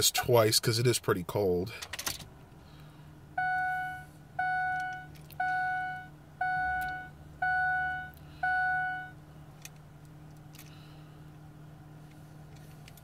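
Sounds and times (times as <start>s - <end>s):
seatbelt warning chime beeps: 3.4s - 9.2s.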